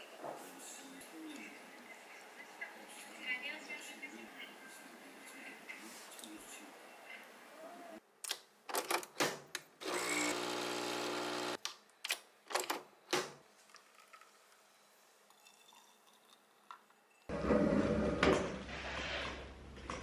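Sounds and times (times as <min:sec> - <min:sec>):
coffee machine pump buzzing: 0:09.8 - 0:11.6.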